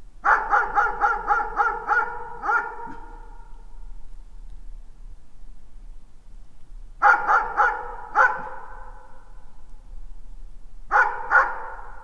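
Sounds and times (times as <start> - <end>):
distant dog barking with echo: 0.2 - 3.6, 7.0 - 9.3, 10.9 - 12.0.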